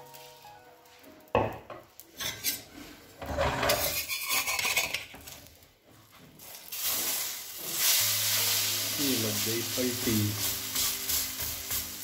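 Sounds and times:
metal spatula scraping griddle: 2.1 - 5.4.

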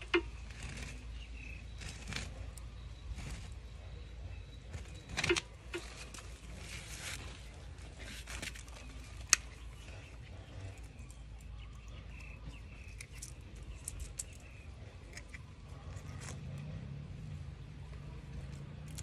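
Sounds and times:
rustling of plastic pot and soil: 4.7 - 10.0.

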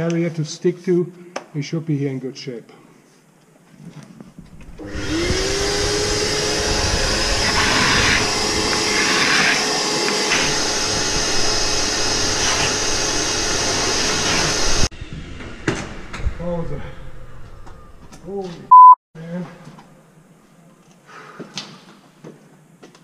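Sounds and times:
shop vacuum motor running: 4.8 - 14.9.

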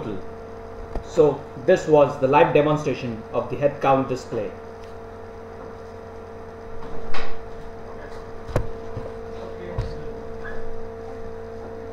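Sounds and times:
electrical hum: 0.0 - 11.9
dull thump: 8.5 - 9.2.

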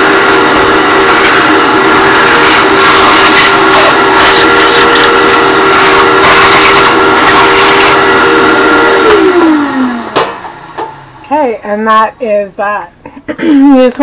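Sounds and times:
shop vacuum whining: 0.0 - 11.3.

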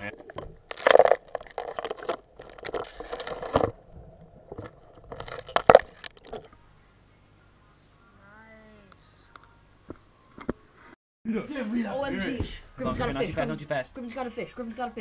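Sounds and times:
crunching and scraping: 0.0 - 6.6.

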